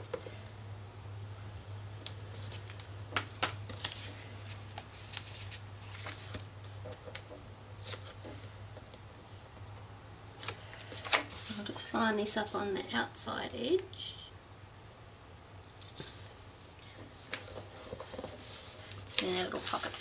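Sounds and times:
low electrical hum: 0.0s - 20.0s
paper and tape crackling: 2.0s - 9.0s, 9.7s - 11.8s, 17.1s - 20.0s.

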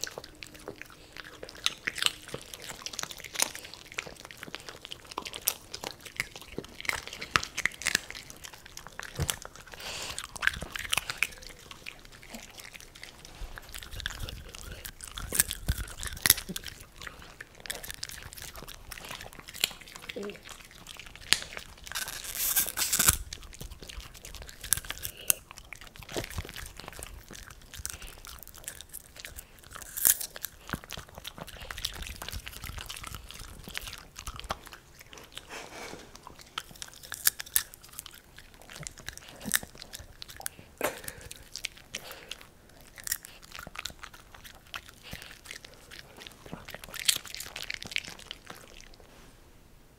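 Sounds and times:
dogs crunching popcorn: 0.0s - 49.2s
mouth sounds: 40.7s - 42.3s.

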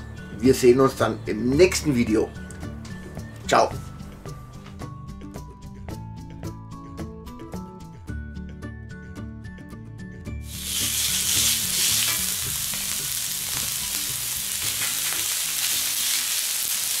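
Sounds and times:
music: 0.0s - 17.0s
meat sizzling on griddle: 10.4s - 17.0s.

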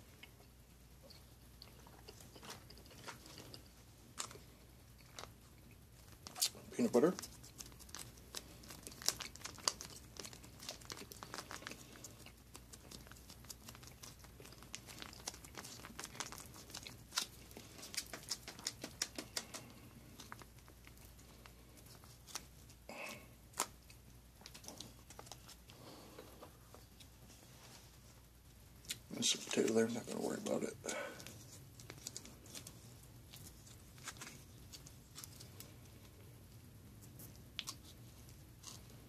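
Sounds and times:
foil pouch crinkling: 6.0s - 22.8s.

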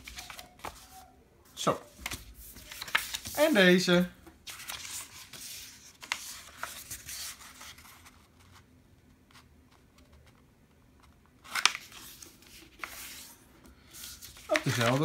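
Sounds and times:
paper rustling and sliding: 0.0s - 1.0s, 1.6s - 3.8s, 4.4s - 8.7s, 11.4s - 15.0s.

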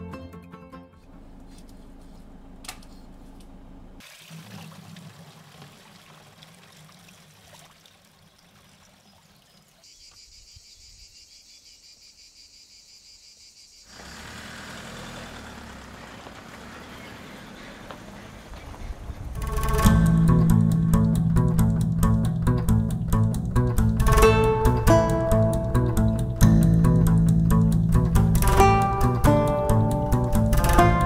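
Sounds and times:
insects droning: 8.1s - 16.4s
truck on dirt track: 13.9s - 31.0s.

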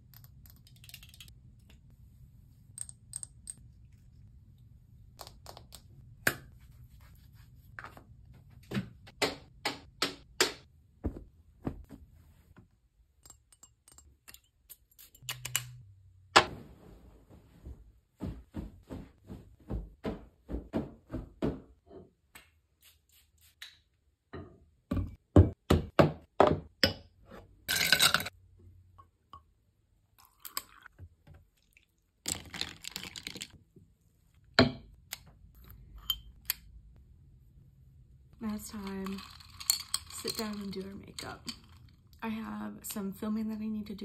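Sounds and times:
glass bottles clicking and knocking: 38.8s - 41.8s.

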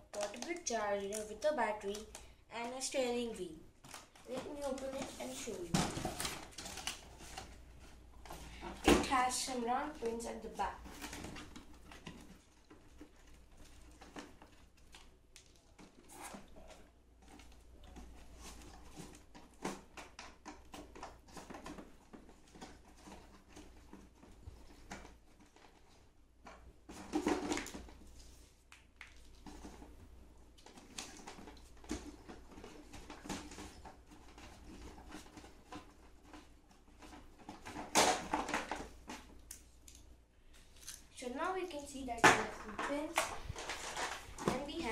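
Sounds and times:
cardboard rustling and scraping: 3.8s - 14.8s, 15.8s - 26.1s, 30.6s - 39.4s, 42.6s - 44.9s
cardboard handling bursts: 3.8s - 26.1s, 42.4s - 44.9s.

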